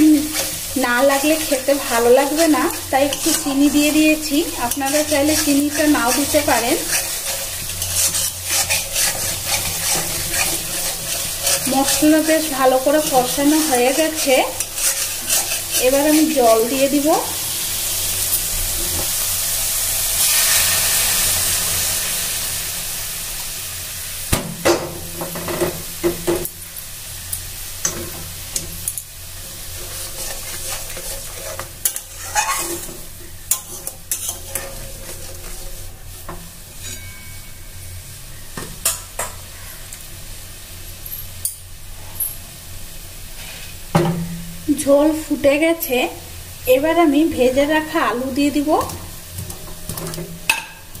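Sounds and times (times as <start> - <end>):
spatula scraping a pan: 0.0 - 17.1, 27.8 - 37.6
water hissing in hot pan: 0.0 - 51.0.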